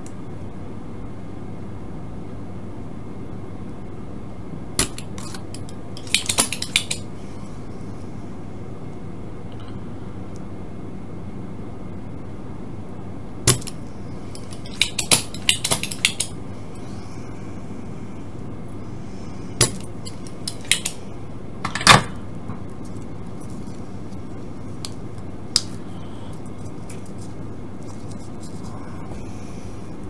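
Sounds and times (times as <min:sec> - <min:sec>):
low hum: 0:06.7 - 0:30.0.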